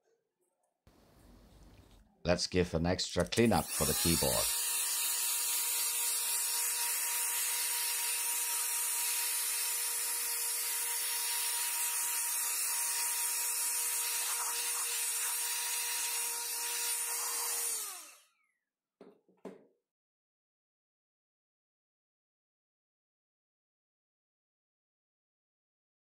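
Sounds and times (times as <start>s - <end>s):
electric air duster whine: 3.6s - 18.4s.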